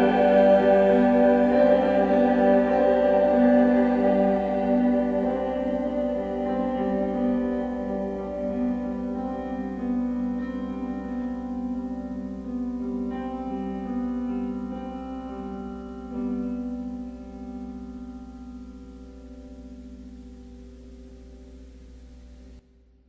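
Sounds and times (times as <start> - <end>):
choir singing: 0.0 - 9.8
piano chords: 0.0 - 22.6.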